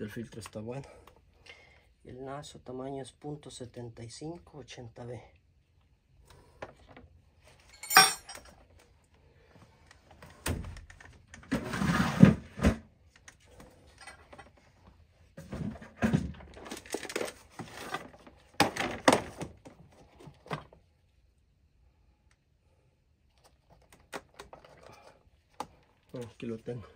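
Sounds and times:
rustling scrape: 0:11.5 - 0:12.6.

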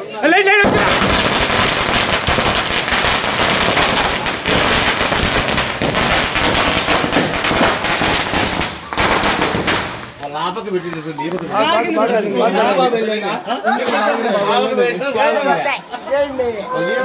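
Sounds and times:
firecrackers crackling: 0:00.4 - 0:11.7.

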